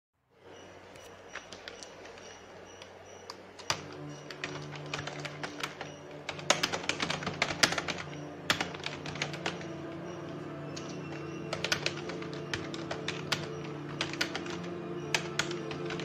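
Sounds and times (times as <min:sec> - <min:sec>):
organ chords: 0:00.8 - 0:16.0.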